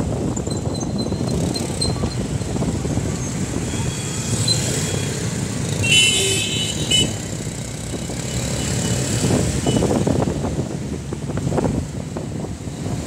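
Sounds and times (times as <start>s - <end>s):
traffic engine and road rumble: 0.0s - 13.0s
vehicle horn: 5.8s - 7.2s.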